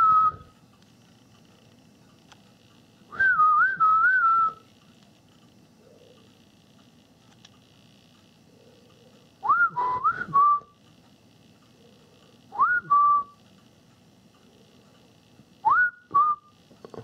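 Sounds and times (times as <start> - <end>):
person whistling: 0.0 - 0.5, 3.1 - 4.6, 9.4 - 10.7, 12.6 - 13.4, 15.6 - 16.5.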